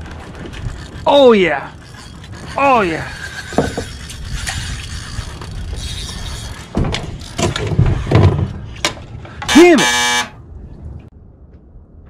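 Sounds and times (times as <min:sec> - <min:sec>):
fishing reel cranking: 0:00.6 - 0:07.3.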